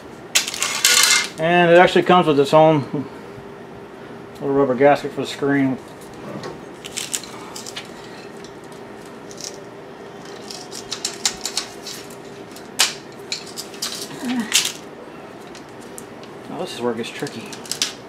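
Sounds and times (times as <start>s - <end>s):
plastic parts clicking and rattling: 10.2s - 14.8s, 17.2s - 18.0s.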